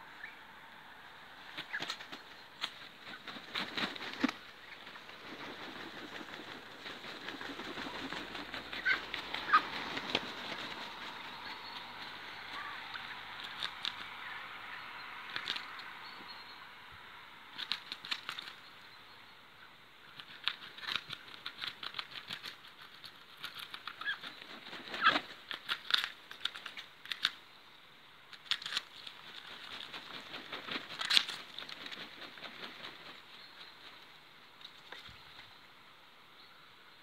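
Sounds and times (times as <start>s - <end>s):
ducks flapping wings: 1.4s - 14.1s, 17.6s - 18.6s, 20.1s - 27.4s, 28.4s - 35.5s.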